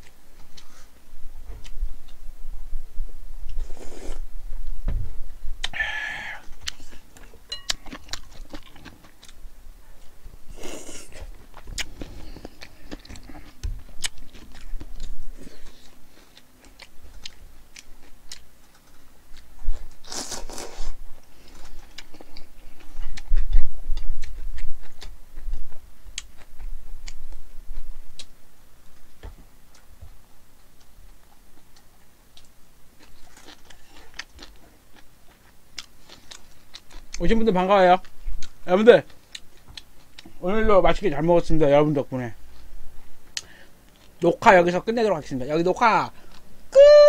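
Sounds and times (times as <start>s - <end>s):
chewing food: 6.4s - 29.1s, 29.7s - 37.3s, 38.0s - 40.4s.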